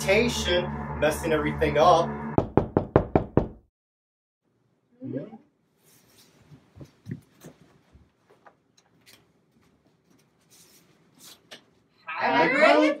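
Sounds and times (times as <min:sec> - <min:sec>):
clothing rustle: 0:05.8 - 0:11.9.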